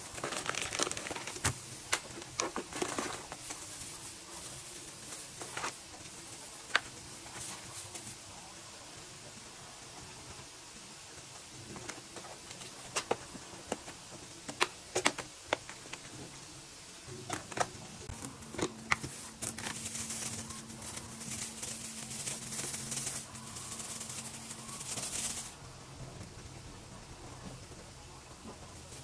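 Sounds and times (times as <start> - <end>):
plastic bag crinkling: 0.0 - 5.8, 17.1 - 25.6.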